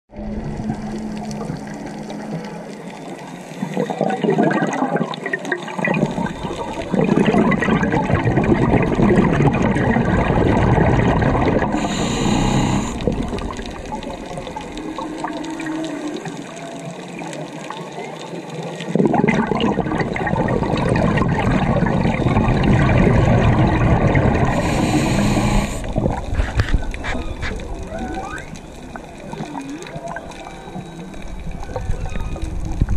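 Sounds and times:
bubbling underwater exhalations: 3.7s - 16.5s, 18.9s - 32.9s
regulator hiss: 11.8s - 13.4s, 24.5s - 26.0s.

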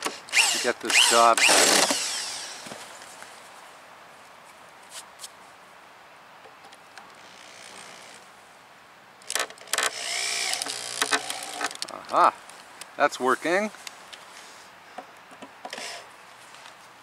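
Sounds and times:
power drill running: 0.0s - 2.6s, 9.8s - 11.6s.

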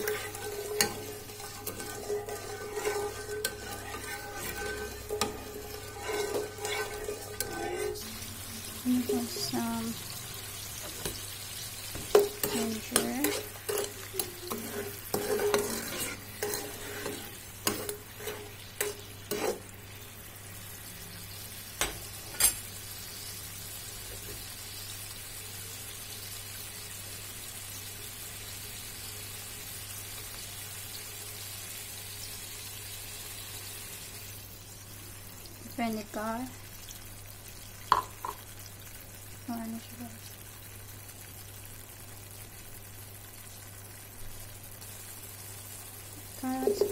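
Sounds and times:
ladle scraping in a pan: 0.0s - 11.2s, 11.8s - 20.0s, 46.4s - 46.9s
pan sizzling: 0.0s - 46.9s
ladle knocking against pan: 37.9s - 38.4s.

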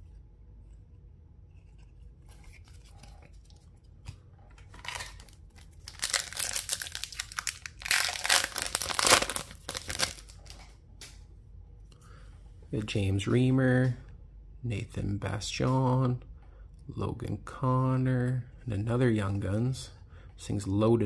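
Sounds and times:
wrapper tearing and crinkling: 4.7s - 10.6s.

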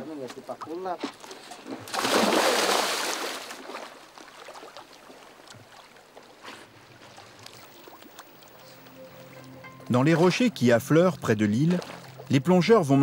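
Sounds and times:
water lapping: 1.0s - 13.0s
diver splashing into sea: 1.9s - 3.9s.

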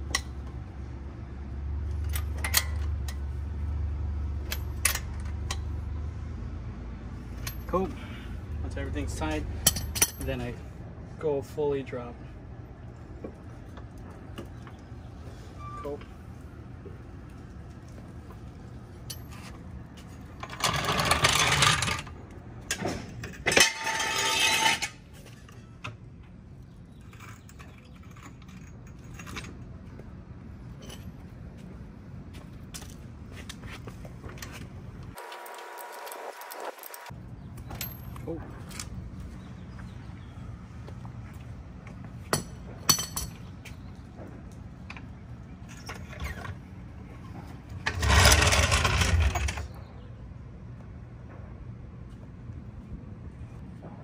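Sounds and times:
jack wheels rattling on concrete: 19.0s - 25.8s, 45.6s - 49.9s
metal scraping and clanking: 19.0s - 25.8s, 45.6s - 49.8s
metal handle clinks: 42.3s - 43.5s.

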